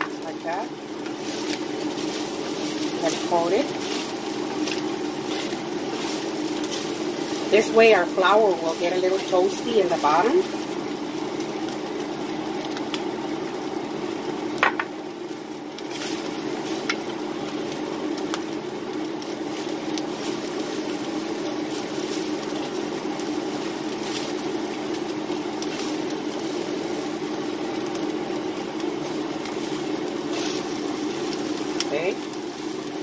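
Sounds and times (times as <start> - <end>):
beef sizzling in a skillet: 0.0 - 33.0
low steady hum: 0.0 - 33.0
wooden spatulas scraping: 1.2 - 7.7
wood knocking on pan: 14.6 - 15.0.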